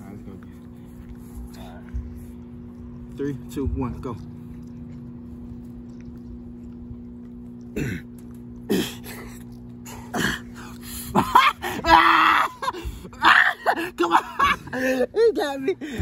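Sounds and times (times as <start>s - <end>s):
men grunting and groaning: 9.9s - 16.0s.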